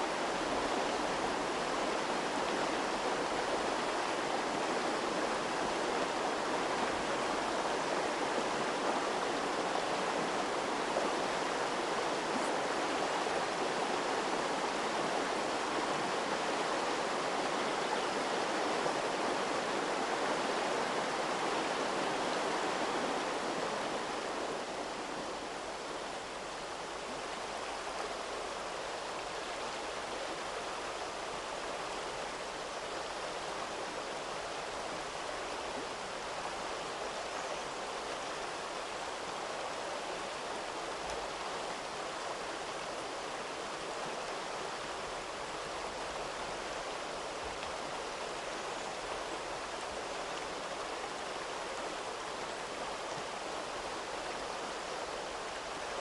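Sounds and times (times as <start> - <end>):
river rushing over stones: 0.0 - 56.0.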